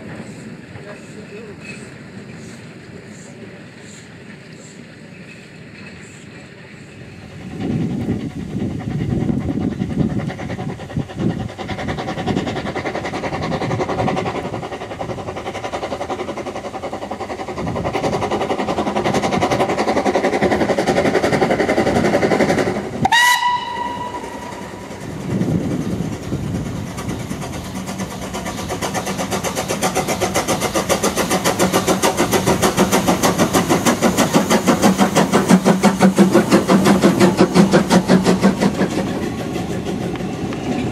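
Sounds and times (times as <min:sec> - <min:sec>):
steam locomotive exhaust chuffs: 0:00.0 - 0:40.9
steam whistle blast: 0:23.0 - 0:24.6.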